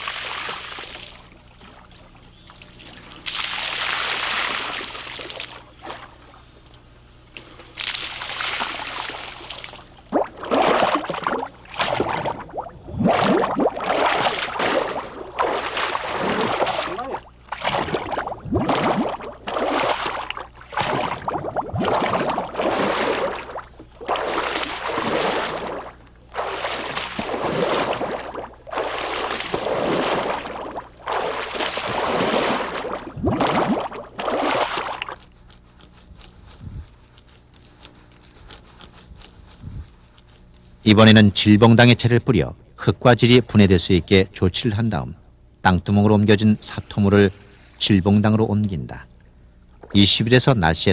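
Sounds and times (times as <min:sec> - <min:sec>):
clay slurry sloshing and splashing: 0:02.7 - 0:06.3, 0:07.8 - 0:35.2.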